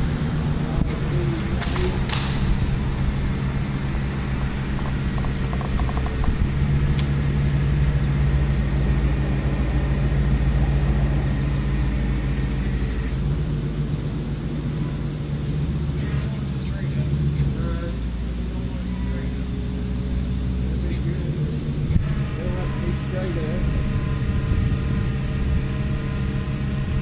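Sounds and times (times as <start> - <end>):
truck engine droning: 0.0 - 27.0
clicks: 0.8 - 7.2.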